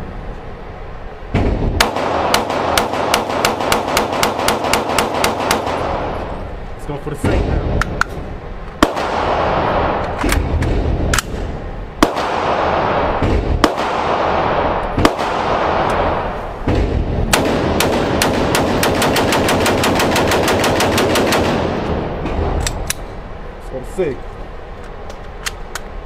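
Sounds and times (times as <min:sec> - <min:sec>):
rapid string of gunshots: 0:01.3 - 0:06.4, 0:08.8 - 0:22.7
rifle gunshots echoing indoors: 0:01.4 - 0:06.4, 0:08.8 - 0:22.7.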